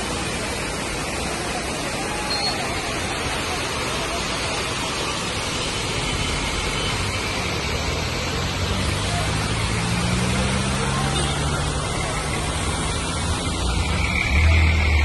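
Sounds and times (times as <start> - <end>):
steady rushing noise: 0.0 - 15.0
vehicle engine humming: 3.1 - 15.0.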